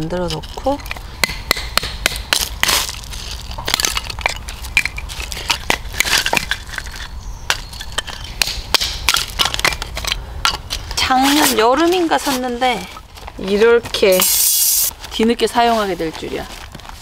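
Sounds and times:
wood splitting knocks and cracks: 1.3s - 10.6s.

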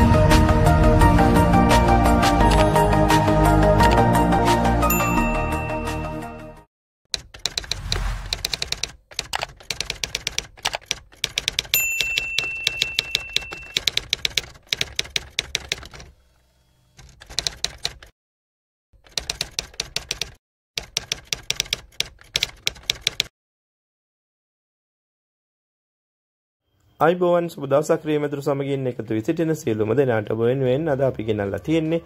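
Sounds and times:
typewriter bell ding: 4.9s - 5.7s, 11.6s - 14.0s
typewriter key clacks: 8.4s - 16.1s, 19.0s - 23.3s.

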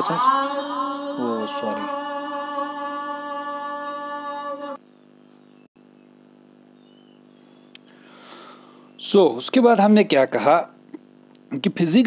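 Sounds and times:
person humming a long note: 0.0s - 4.8s
faint steady hum: 0.0s - 12.0s.

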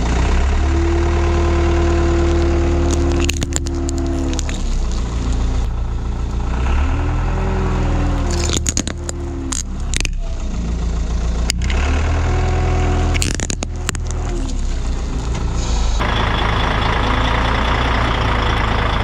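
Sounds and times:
heavy vehicle engine running: 0.0s - 19.0s
plastic cracking: 2.1s - 5.7s, 8.1s - 10.3s, 13.0s - 15.5s.

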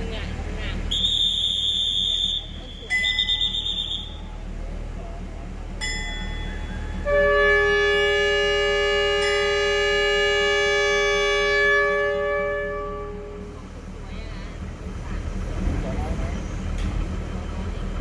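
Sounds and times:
train air horn chord: 6.9s - 13.6s.

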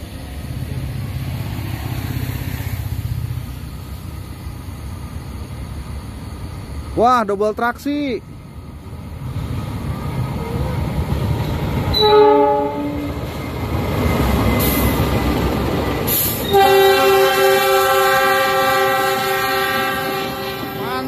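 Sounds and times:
locomotive engine rumble: 0.0s - 21.0s
train horn blast: 11.9s - 13.1s, 16.4s - 21.0s.

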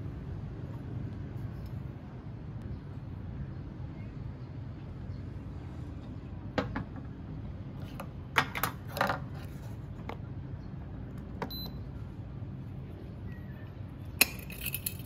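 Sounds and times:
steady low hum: 0.0s - 15.0s
coffee gear clicking and clattering: 14.2s - 15.0s.

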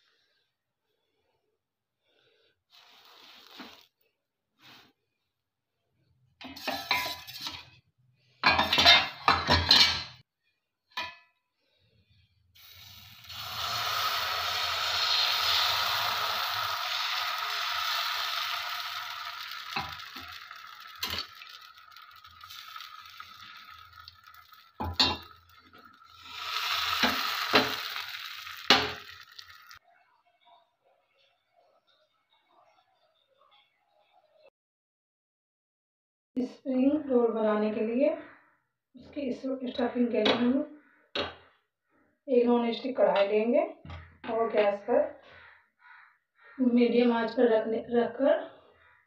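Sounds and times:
metal kitchenware clattering: 6.4s - 7.7s, 8.4s - 10.2s, 16.5s - 29.7s
batter sizzling in a pan: 12.6s - 29.8s
ladle clinking: 13.3s - 29.8s.

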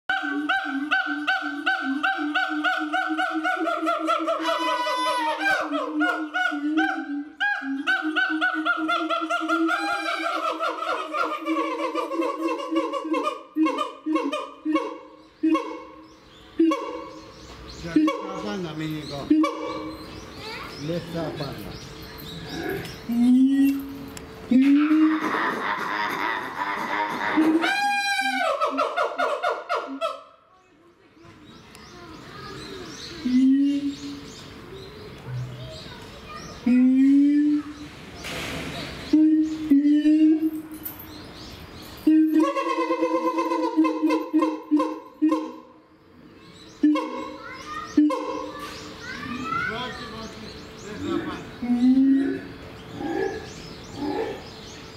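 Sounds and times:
gibbons screaming whoops: 24.5s - 28.8s.

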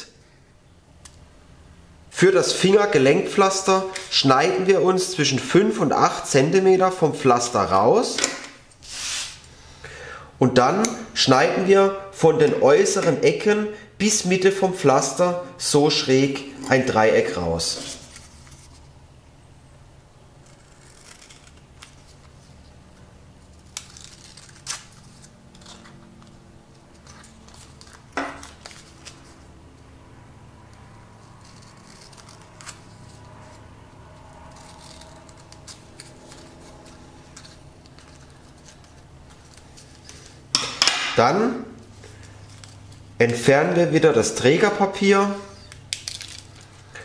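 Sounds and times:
scissors snipping: 20.4s - 22.3s, 23.6s - 26.4s, 31.4s - 33.2s, 34.5s - 39.7s.

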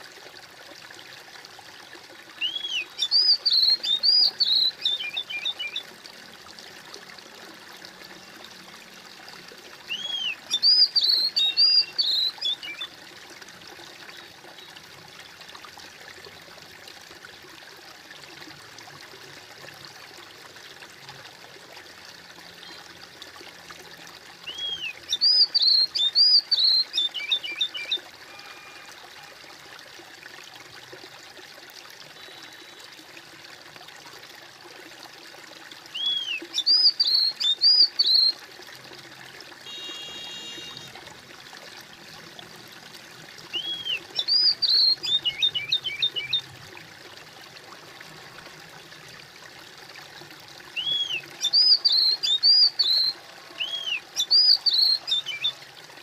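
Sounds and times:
water trickling and babbling: 0.0s - 56.0s
songbird singing: 2.4s - 6.0s, 9.8s - 13.0s, 24.4s - 28.9s, 32.2s - 32.8s, 35.9s - 38.4s, 39.7s - 41.0s, 43.5s - 46.5s, 50.7s - 55.6s.

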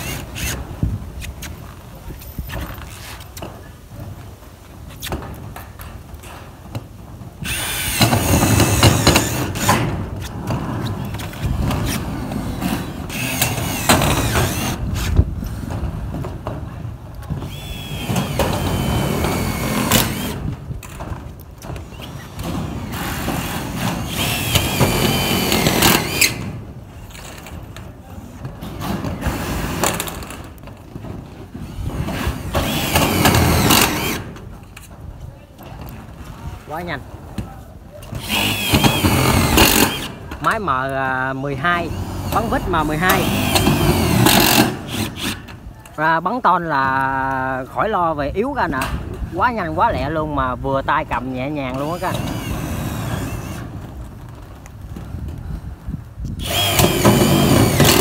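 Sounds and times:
cordless driver motor whining: 11.9s - 15.1s, 17.5s - 20.4s, 32.4s - 34.2s, 38.2s - 40.1s, 41.8s - 45.4s, 51.8s - 53.6s, 56.4s - 58.0s
screw grinding into metal: 41.8s - 45.4s, 56.4s - 58.0s.

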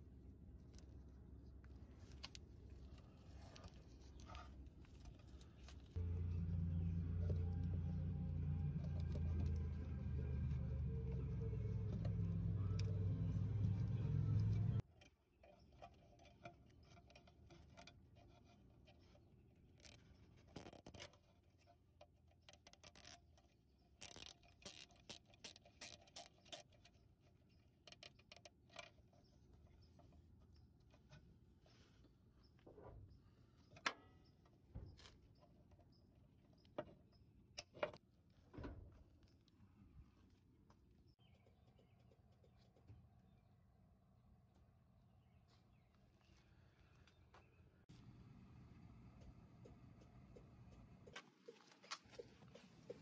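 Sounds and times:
clicks and rustles of wiring: 0.6s - 6.3s, 7.0s - 31.3s
low hum: 4.8s - 14.8s.

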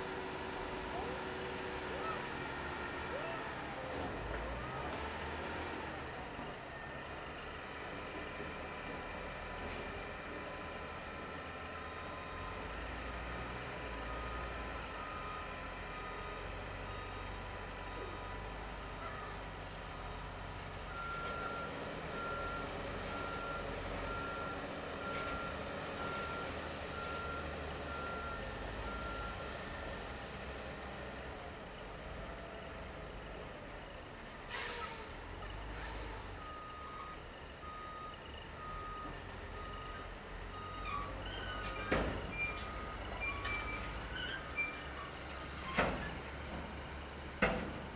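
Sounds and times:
truck diesel engine under load: 0.0s - 47.9s
reversing alarm beeping: 20.9s - 29.4s.

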